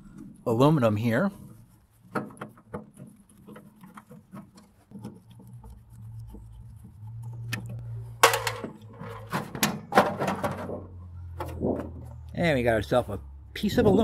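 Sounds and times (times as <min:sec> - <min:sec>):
metal clatter: 0:08.2 - 0:12.1.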